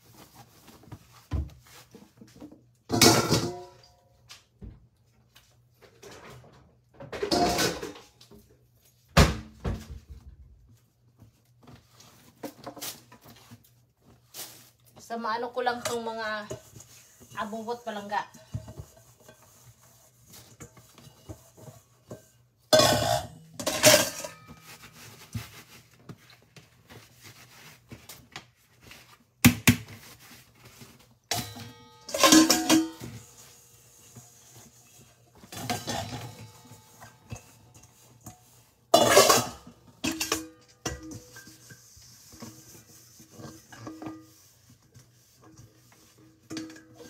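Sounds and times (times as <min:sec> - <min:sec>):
kitchenware clattering and clinking: 0:01.7 - 0:04.1, 0:05.8 - 0:10.3, 0:15.7 - 0:25.7, 0:30.7 - 0:47.0
towel rubbing metal bowl: 0:15.9 - 0:22.2, 0:41.3 - 0:47.0
towel rubbing plastic colander: 0:24.5 - 0:31.2.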